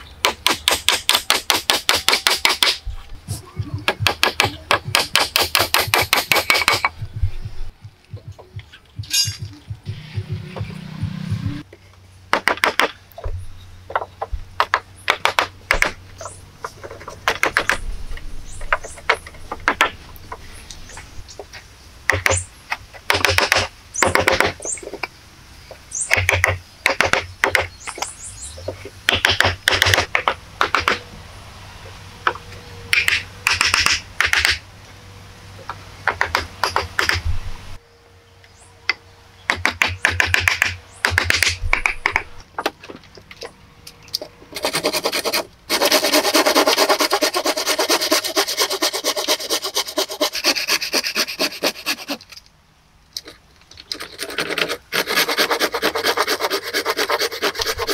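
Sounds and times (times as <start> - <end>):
hatchet chopping wood: 0.2 - 2.8, 3.9 - 6.9, 12.3 - 13.0, 13.9 - 16.0, 22.1 - 22.4, 23.1 - 24.6, 26.1 - 28.1, 29.1 - 31.0, 32.9 - 34.6, 36.0 - 37.2, 39.5 - 42.8.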